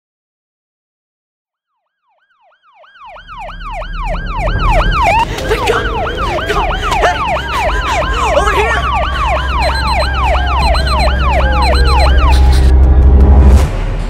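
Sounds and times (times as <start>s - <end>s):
siren wailing: 2.0s - 12.7s
sirens yelping: 2.3s - 12.7s.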